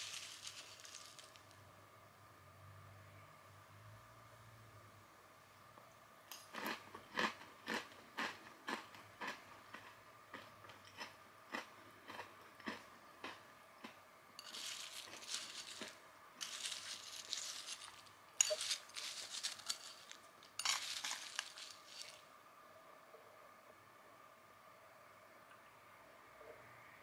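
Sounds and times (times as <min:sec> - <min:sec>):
spoon stirring dry snack mix: 0:00.0 - 0:01.6, 0:14.4 - 0:22.2
crunchy chewing: 0:06.5 - 0:22.2
spoon clinking on ceramic bowl: 0:18.4 - 0:18.8.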